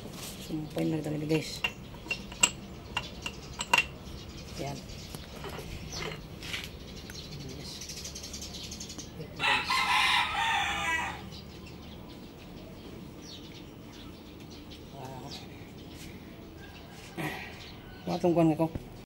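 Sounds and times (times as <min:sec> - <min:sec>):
rooster crowing: 0:09.4 - 0:11.3, 0:16.6 - 0:18.2.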